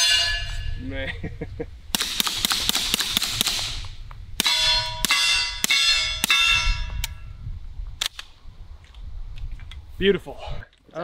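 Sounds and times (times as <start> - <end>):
steel target ringing: 0.0 - 0.8, 4.4 - 7.3.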